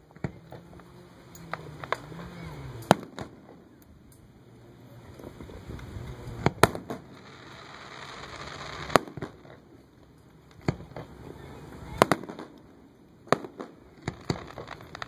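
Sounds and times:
fireworks bursting with bangs: 0.0s - 4.1s, 5.0s - 15.0s
firework hiss: 5.1s - 9.8s, 10.5s - 15.0s.

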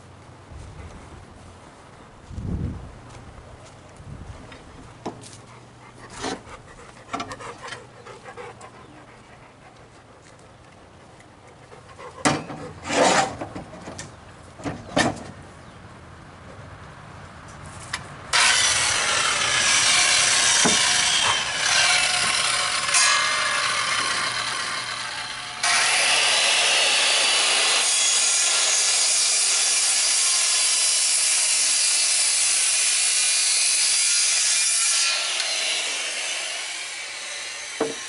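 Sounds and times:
circular saw cutting wood: 18.3s - 38.0s.

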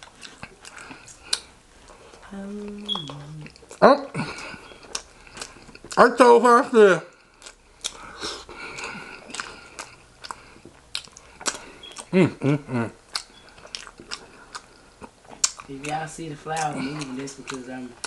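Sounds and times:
person chewing food: 0.0s - 18.0s
wet mouth clicks: 7.1s - 8.0s, 8.7s - 12.2s, 13.1s - 16.0s.

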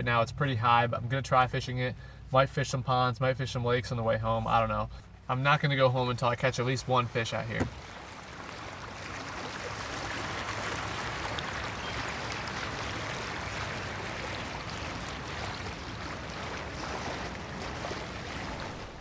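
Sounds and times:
rain pattering on water: 6.6s - 19.0s
river water rushing: 7.6s - 19.0s.

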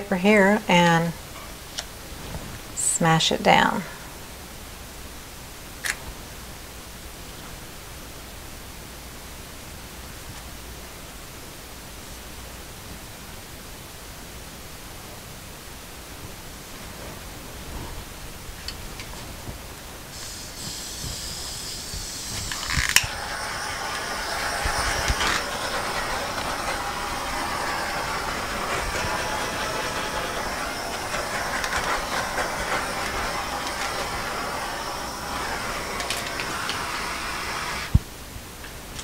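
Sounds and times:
torch burning with a hiss: 20.0s - 38.1s
torch click: 20.2s - 38.0s.

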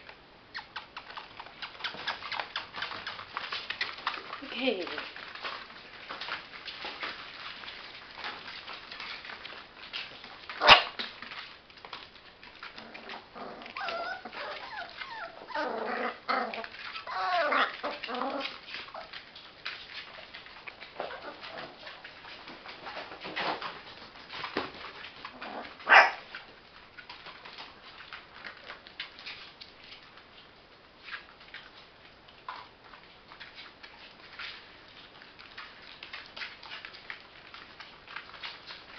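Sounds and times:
puppies scuffling: 0.0s - 38.9s
puppies whimpering and yipping: 13.1s - 19.2s.

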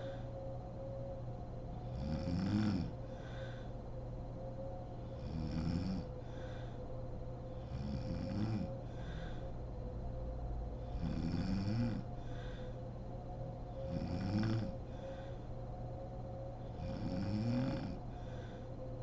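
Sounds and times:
faint breath: 0.0s - 0.5s, 2.8s - 4.2s, 6.0s - 8.0s, 8.6s - 10.0s, 12.0s - 14.0s, 14.6s - 17.0s, 17.6s - 19.0s
woman snoring: 1.8s - 3.0s, 5.2s - 6.0s, 7.6s - 8.7s, 10.8s - 12.1s, 13.8s - 14.8s, 16.7s - 18.0s.

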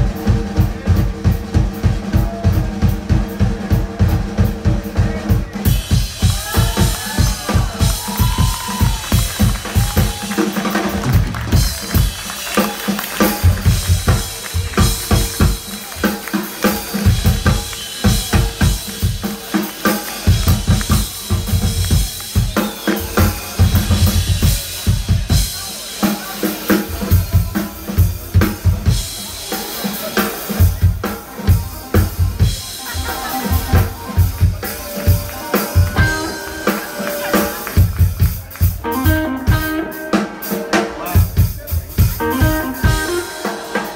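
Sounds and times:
drum kit played hard: 0.0s - 43.9s
guitar: 26.6s - 43.9s.

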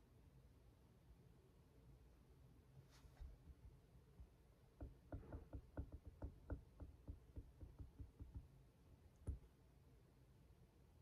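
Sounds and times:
stylus tapping on screen: 4.8s - 9.5s.

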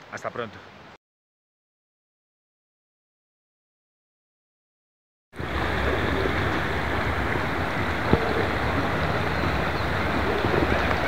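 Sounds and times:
flowing water rushing: 5.4s - 11.0s.

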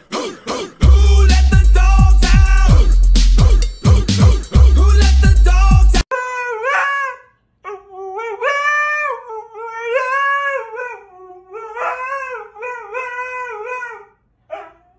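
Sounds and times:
dog howling and yowling: 6.2s - 14.9s.

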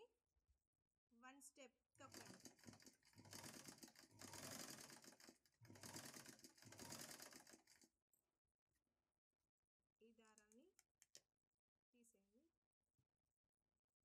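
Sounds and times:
sewing machine stitching: 2.0s - 7.9s.

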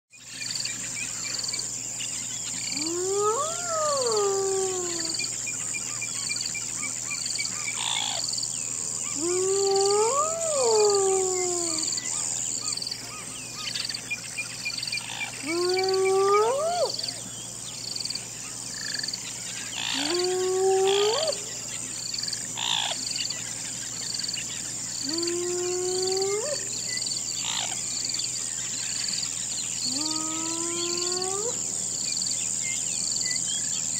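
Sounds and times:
pulsing insect chirp: 0.1s - 33.9s
insect trilling: 0.2s - 23.4s, 24.0s - 32.4s
hyena howling: 2.7s - 5.3s, 9.1s - 12.2s, 15.4s - 17.2s, 19.8s - 21.5s, 25.0s - 26.7s, 29.9s - 31.6s.

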